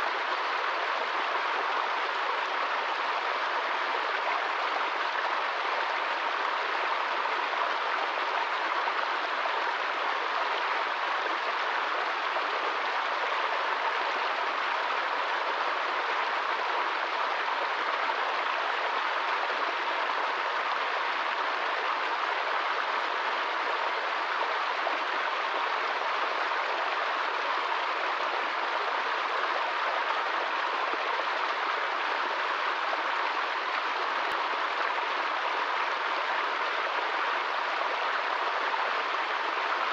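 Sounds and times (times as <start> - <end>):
stream rushing over rocks: 0.0 - 39.9.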